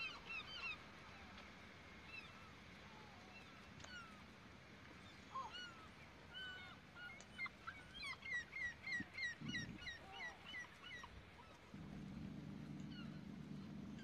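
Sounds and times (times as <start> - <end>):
birds chirping: 5.1 - 14.0.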